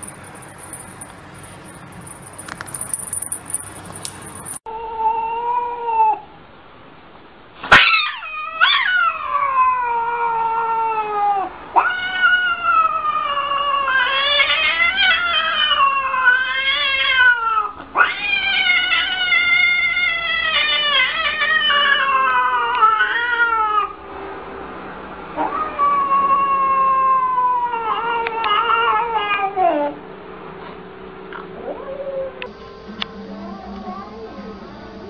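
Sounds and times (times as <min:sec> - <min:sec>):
cat yowling: 0:04.7 - 0:06.3, 0:07.7 - 0:24.0, 0:25.4 - 0:30.0.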